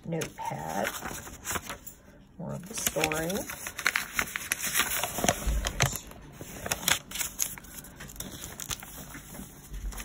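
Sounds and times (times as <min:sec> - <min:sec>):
paper pages crackling and rustling: 0:00.0 - 0:10.0.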